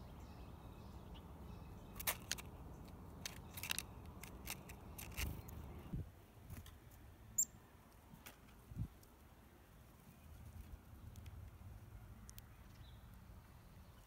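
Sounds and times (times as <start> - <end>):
bird pecking seeds clicks: 3.2 - 5.6.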